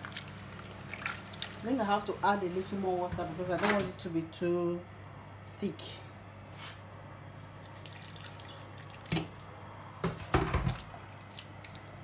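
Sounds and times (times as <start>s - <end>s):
water pouring into pot: 7.7s - 9.2s.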